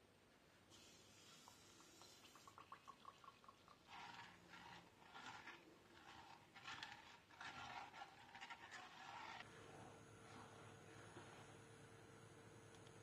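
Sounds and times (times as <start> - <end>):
spatula scraping saucepan: 3.8 - 11.5.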